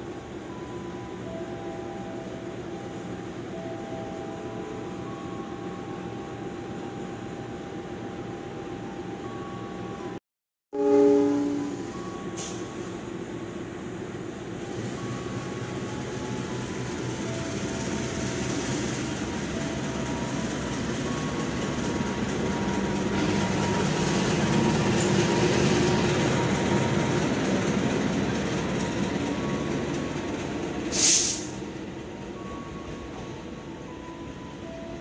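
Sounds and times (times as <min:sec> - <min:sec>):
diesel locomotive engine passing: 0:10.8 - 0:35.0
short sharp hiss: 0:31.0 - 0:31.5.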